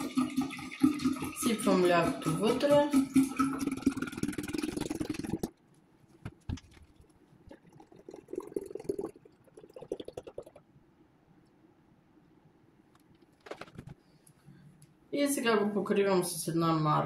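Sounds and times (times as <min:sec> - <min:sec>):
milk pouring stream: 0:00.0 - 0:05.5, 0:06.9 - 0:10.6
liquid glugging and splashing: 0:00.0 - 0:05.6, 0:06.3 - 0:10.7.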